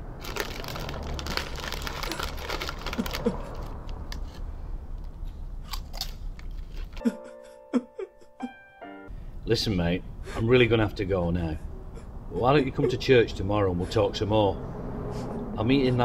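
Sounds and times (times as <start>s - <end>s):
rustling and crunching handling: 0.1s - 7.0s.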